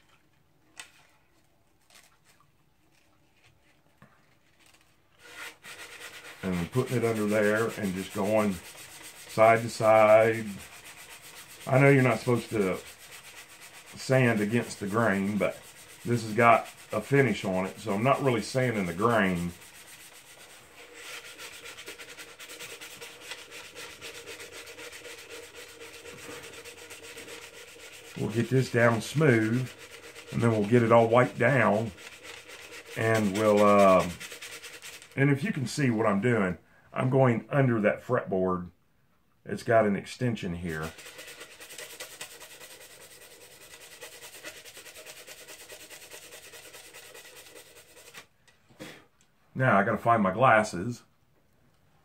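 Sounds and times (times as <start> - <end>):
sandpaper rubbing on wood: 5.2 - 35.5, 40.7 - 48.3.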